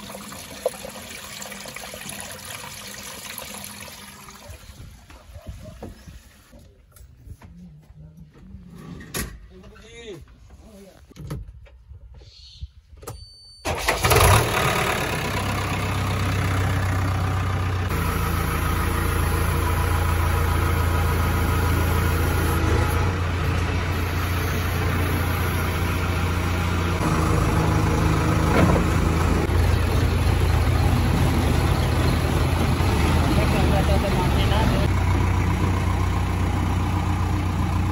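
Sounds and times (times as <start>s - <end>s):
diesel engine starting and running: 13.6s - 37.9s.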